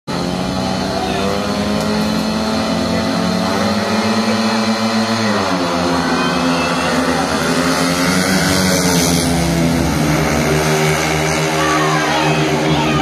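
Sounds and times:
motorcycle engines revving: 0:00.1 - 0:13.0.

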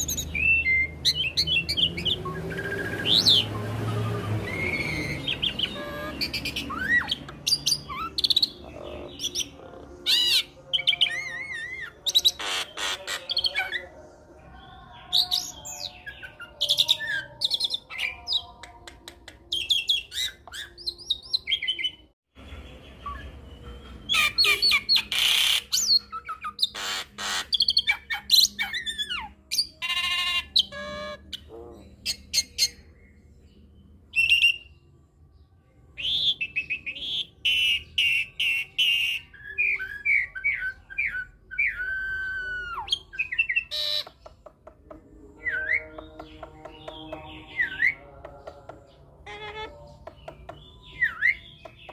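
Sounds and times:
bird singing whistles and squawks: 0:00.0 - 0:13.9, 0:22.9 - 0:33.2, 0:34.1 - 0:34.8, 0:36.0 - 0:44.4, 0:49.3 - 0:51.9.

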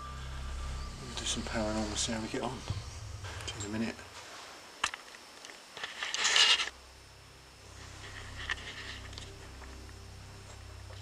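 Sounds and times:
faint low hum: 0:00.0 - 0:11.0
scratchy scraping rustle: 0:05.8 - 0:06.7, 0:07.8 - 0:09.4.

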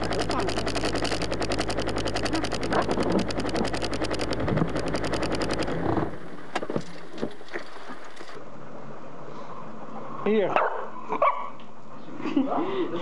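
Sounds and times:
car engine idling: 0:00.0 - 0:08.4
sharp clicks: 0:00.0 - 0:08.4.

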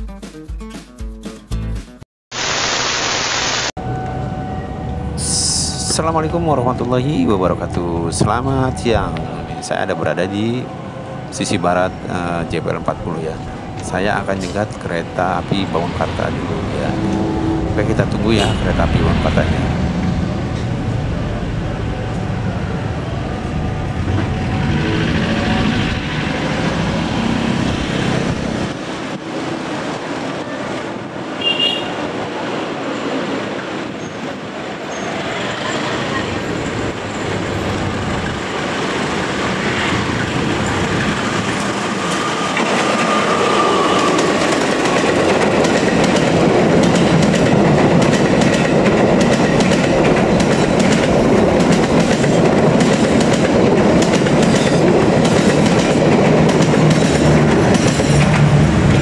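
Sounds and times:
diesel locomotive passing: 0:03.8 - 0:59.0
train coaches clattering over rails: 0:11.4 - 0:20.9, 0:23.8 - 0:59.0.

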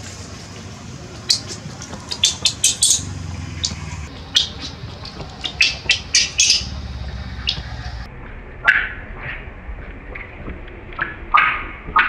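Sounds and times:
baby monkey squeaking: 0:01.3 - 0:06.8.

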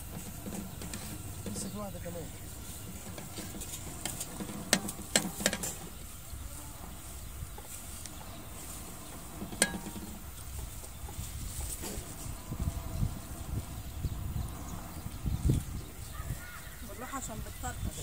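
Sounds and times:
metal utensils clinking on cookware: 0:09.4 - 0:10.3.

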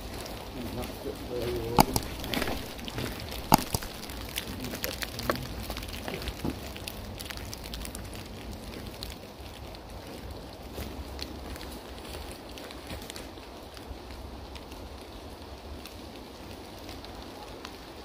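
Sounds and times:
sharp clicks: 0:01.8 - 0:04.4
footsteps crunching through dry leaves: 0:01.8 - 0:04.6.

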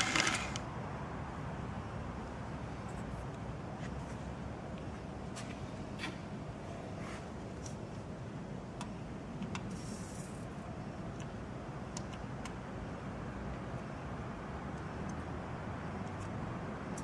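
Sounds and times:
equipment humming: 0:00.0 - 0:17.0.

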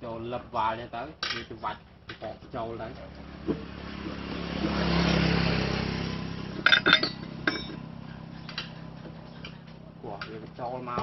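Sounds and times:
vehicle engine passing: 0:01.8 - 0:11.0
sharp metallic clinks: 0:06.6 - 0:08.8.

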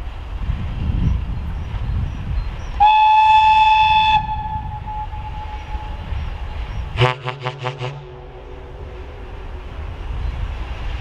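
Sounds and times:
low rumble of approaching train: 0:00.0 - 0:11.0
locomotive whistle: 0:02.8 - 0:11.0.

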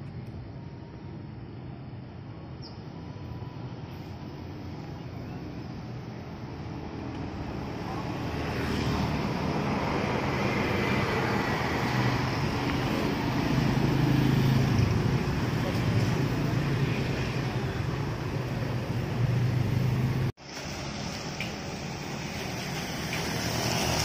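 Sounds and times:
tyres hissing on wet asphalt: 0:20.4 - 0:24.0.

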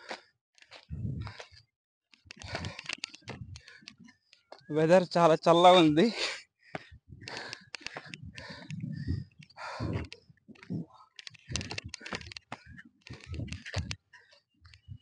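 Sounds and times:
man panting heavily: 0:00.0 - 0:00.3, 0:00.9 - 0:01.5, 0:02.3 - 0:04.1, 0:06.0 - 0:14.4
sharp irregular clicks: 0:00.6 - 0:04.7, 0:06.7 - 0:15.0.

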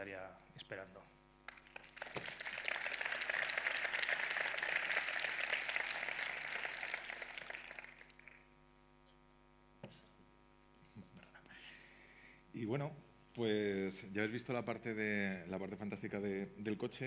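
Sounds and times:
steady electrical hum: 0:00.0 - 0:17.0
audience applauding: 0:01.5 - 0:08.4.

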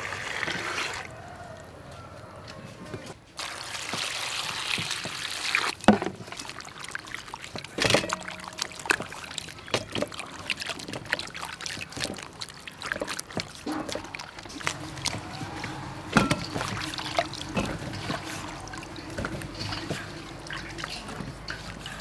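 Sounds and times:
hands sloshing vegetables in water: 0:03.4 - 0:22.0
tap water pouring into bowl: 0:03.4 - 0:22.0
knocks against steel bowl: 0:16.1 - 0:16.8.

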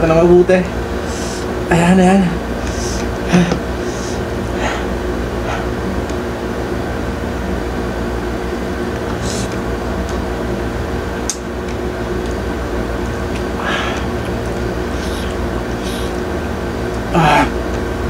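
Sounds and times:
low machine hum: 0:00.0 - 0:18.0
chewing and mouth noises: 0:13.0 - 0:16.2.

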